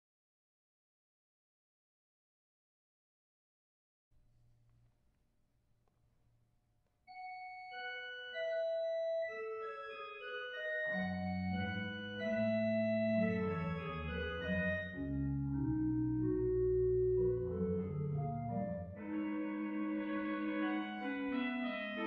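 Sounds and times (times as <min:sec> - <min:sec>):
pipe organ music: 0:07.1 - 0:22.0.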